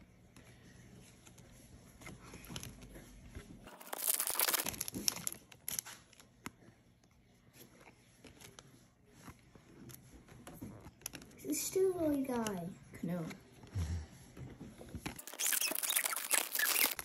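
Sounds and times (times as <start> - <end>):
crinkling rustle: 1.1 - 6.3, 14.8 - 17.0.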